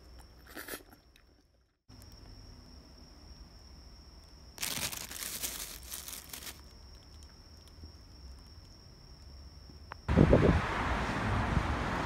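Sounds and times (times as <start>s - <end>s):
plastic bags crinkling: 4.6s - 7.7s.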